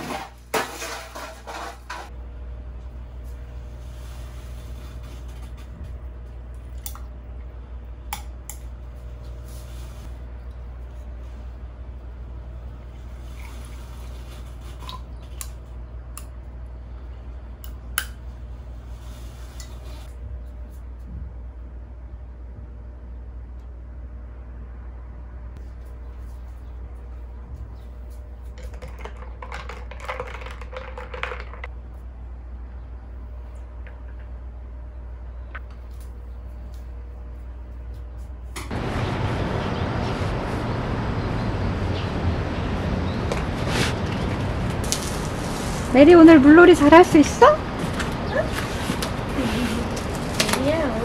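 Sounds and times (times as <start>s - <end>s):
steady low hum: 0.1s - 51.0s
coffee pouring over ice: 28.6s - 31.7s.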